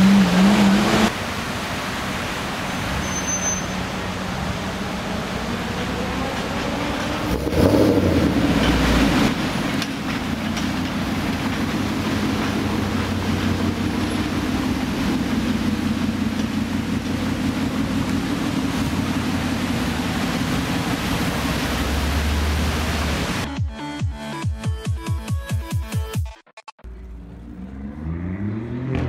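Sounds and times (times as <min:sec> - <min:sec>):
car engine passing slowly: 0:26.8 - 0:29.0.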